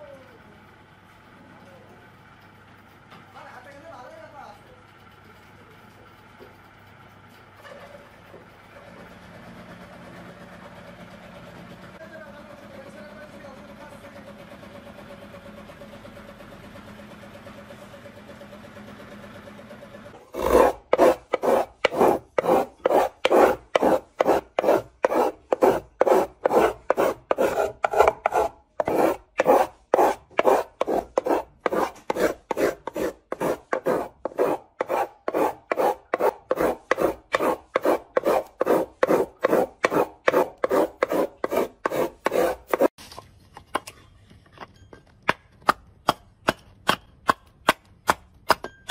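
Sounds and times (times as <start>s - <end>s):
hand tool rasping on wood: 20.2s - 43.0s.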